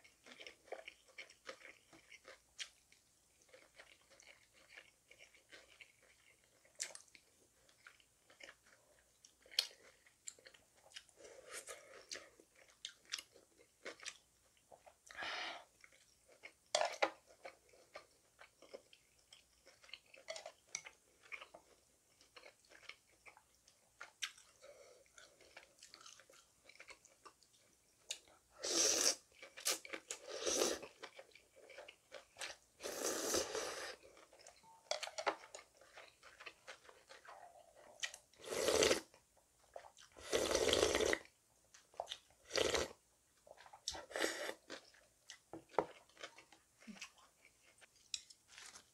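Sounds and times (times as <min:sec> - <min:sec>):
woman slurping noodles: 0:32.8 - 0:34.0.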